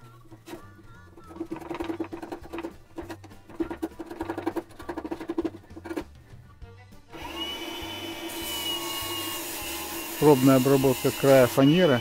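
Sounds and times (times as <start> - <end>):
chisel scraping plywood: 0.0 - 6.2
background music: 0.0 - 12.0.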